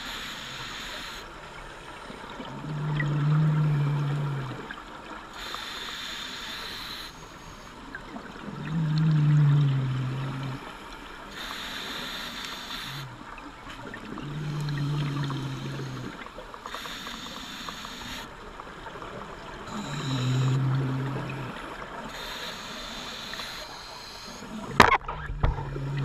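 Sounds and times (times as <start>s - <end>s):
scuba regulator hiss: 0.0s - 1.3s, 5.4s - 7.7s, 11.3s - 13.1s, 16.7s - 18.3s, 22.1s - 24.5s
exhaled bubbles rumbling: 2.0s - 5.0s, 7.9s - 11.0s, 13.0s - 16.6s, 18.5s - 22.2s, 24.5s - 26.0s.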